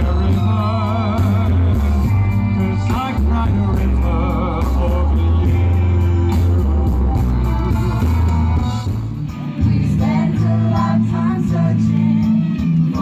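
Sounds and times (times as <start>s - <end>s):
man singing into a microphone: 0.0s - 6.8s
backing track with heavy bass: 0.0s - 13.0s
group of young singers: 9.6s - 13.0s.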